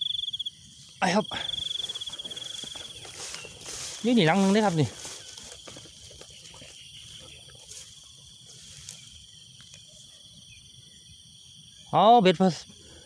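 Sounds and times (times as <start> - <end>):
crickets chirring: 0.0 - 13.0
footsteps in grass: 0.6 - 10.4.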